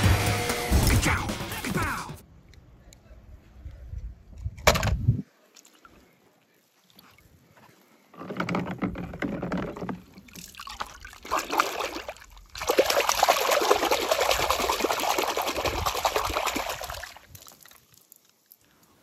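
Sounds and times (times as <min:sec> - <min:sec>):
water trickling and splashing: 0:05.2 - 0:19.0.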